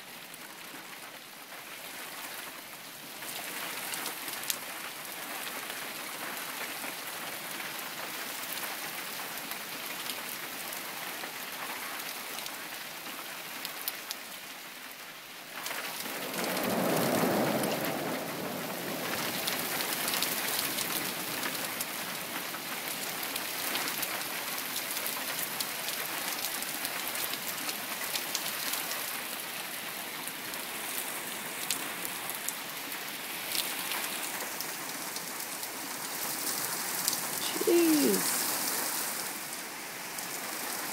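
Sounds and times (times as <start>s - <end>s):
heavy rain falling: 0.0s - 40.9s
thunder rumbling: 16.1s - 19.8s.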